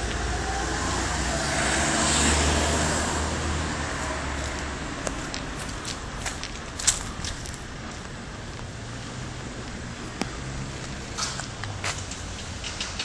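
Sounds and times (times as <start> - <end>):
car driving past: 0.0 - 5.0.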